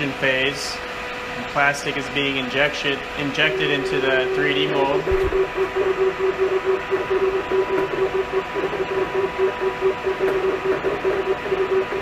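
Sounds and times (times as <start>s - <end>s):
pulsing motor hum: 0.0s - 12.0s.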